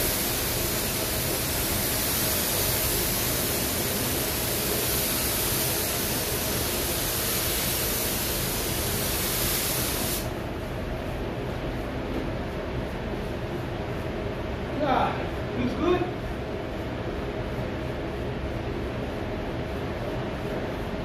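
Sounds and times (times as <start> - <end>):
paint spray gun hissing: 0.0 - 10.3.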